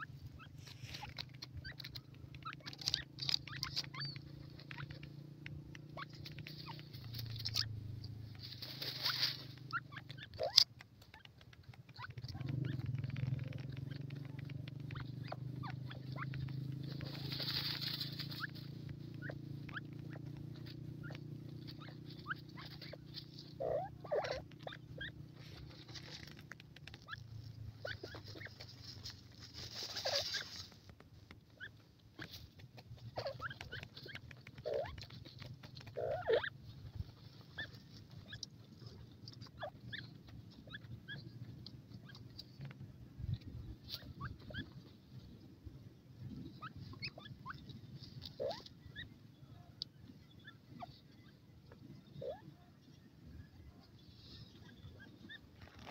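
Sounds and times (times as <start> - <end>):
low hum: 0.0 - 11.5
scratchy rustles in soil: 0.0 - 49.2, 53.6 - 55.9
soft bird clucks: 0.0 - 55.9.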